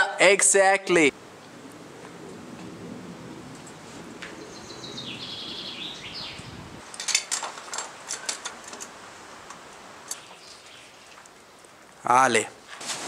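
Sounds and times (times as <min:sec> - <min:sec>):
climbing gear clinking: 0:06.8 - 0:09.0.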